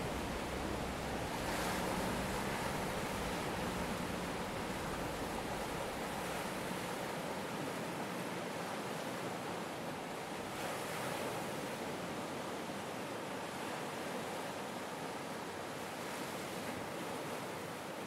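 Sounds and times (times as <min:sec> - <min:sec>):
deep rumble: 0:00.0 - 0:06.6
faint low hum: 0:00.0 - 0:06.9
steady rushing noise: 0:00.0 - 0:07.0.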